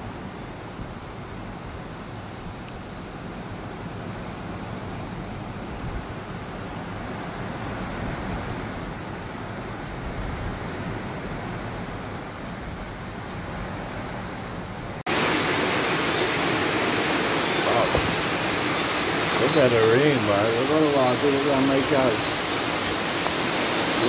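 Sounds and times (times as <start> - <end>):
heavy rain: 0.0 - 24.0
car driving through floodwater: 10.6 - 24.0.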